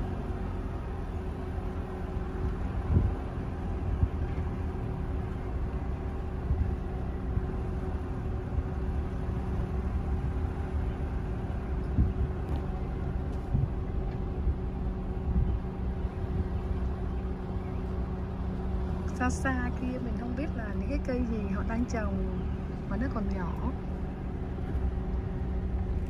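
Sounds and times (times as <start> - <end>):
engine and tyres rumbling: 0.0 - 26.0.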